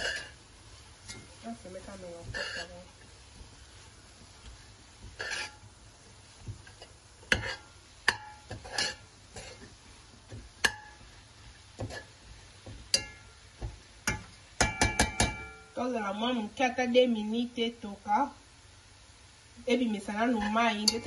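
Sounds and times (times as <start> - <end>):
metal spoon scraping a pot: 0.0 - 0.4, 2.2 - 2.9, 5.1 - 5.6, 6.7 - 9.7.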